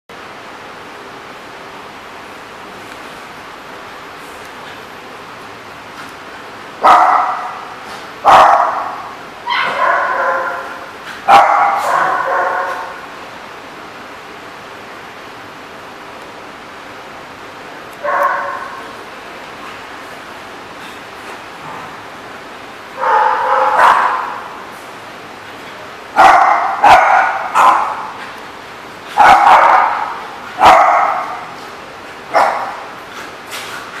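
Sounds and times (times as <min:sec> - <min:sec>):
dog barking with echo: 0:06.8 - 0:07.6, 0:08.2 - 0:13.0, 0:18.0 - 0:18.8, 0:23.0 - 0:24.4, 0:26.2 - 0:28.1, 0:29.2 - 0:31.5, 0:32.3 - 0:32.8.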